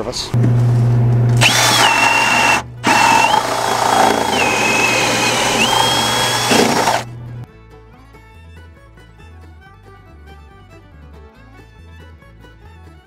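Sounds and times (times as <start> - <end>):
cordless drill boring into wood: 1.4 - 7.1
quiet fiddle music: 7.3 - 13.0.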